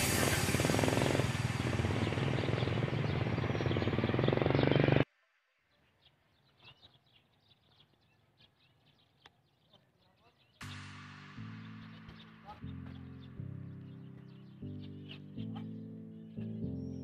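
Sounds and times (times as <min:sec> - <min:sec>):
loud dense steady noise: 0:00.0 - 0:03.5
bird chirps: 0:01.2 - 0:05.0, 0:05.6 - 0:17.0.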